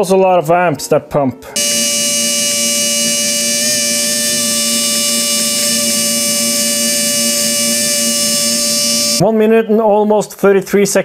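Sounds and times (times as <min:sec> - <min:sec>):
electric pump whining: 0:01.6 - 0:09.2.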